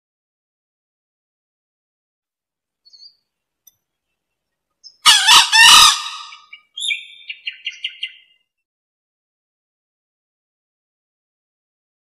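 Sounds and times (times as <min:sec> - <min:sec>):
junglefowl crowing: 0:05.0 - 0:06.6.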